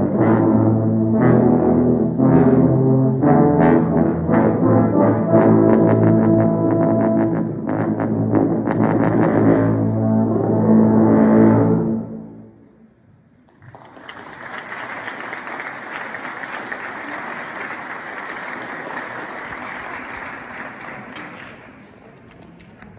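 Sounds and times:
tuba and euphonium chord: 0.0s - 12.4s
applause: 13.4s - 22.4s.

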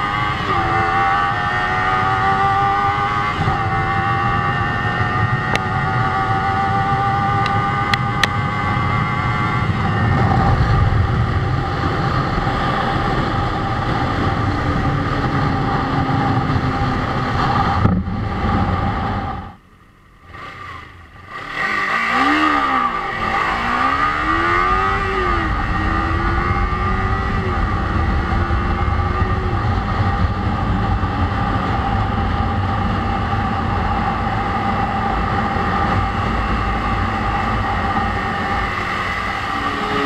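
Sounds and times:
wind rush: 0.0s - 19.6s, 21.6s - 40.0s
motorcycle engine running: 0.0s - 40.0s.

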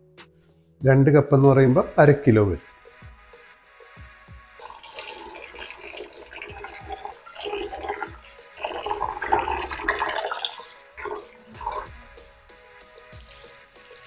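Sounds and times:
water sloshing and splashing: 4.6s - 12.2s
tap water running into bowl: 4.6s - 12.3s, 12.9s - 14.0s
hands swirling rice in water: 4.6s - 14.0s.

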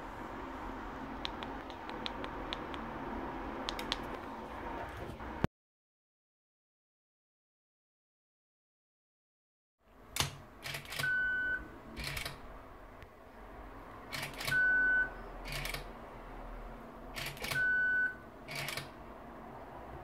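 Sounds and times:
short steady beep: 11.0s - 11.7s, 14.4s - 15.3s, 17.5s - 18.2s.

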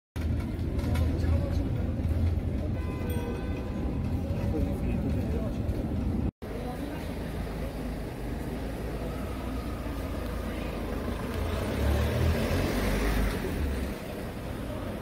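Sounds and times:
city street traffic: 0.2s - 15.0s
vehicle passing close by: 10.5s - 15.0s.

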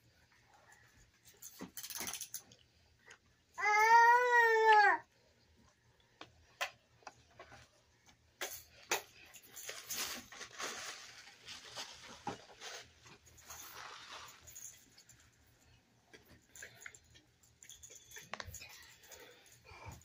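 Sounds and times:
wrapper crinkling and rustling: 9.4s - 15.1s.

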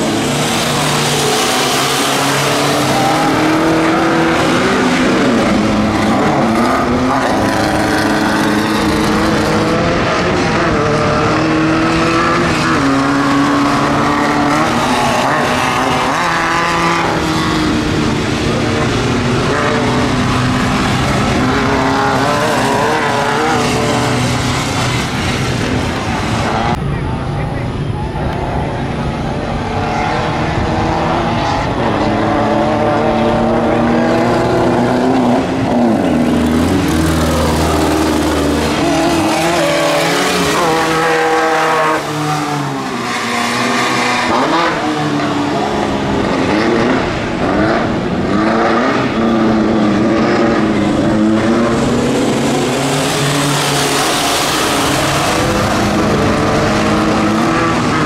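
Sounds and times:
racing buggy engines revving: 0.0s - 58.0s.

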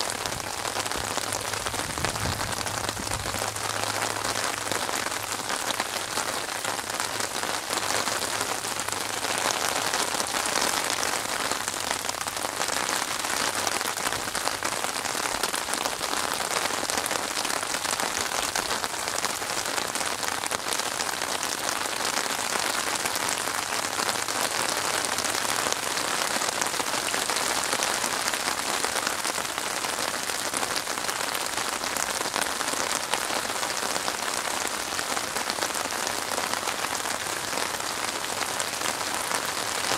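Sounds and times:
rain falling on water: 0.0s - 39.9s.

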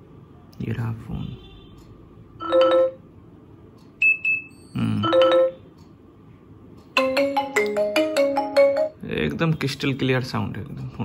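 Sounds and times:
phone ringtone melody: 2.4s - 3.0s, 4.0s - 5.7s, 7.0s - 9.0s.

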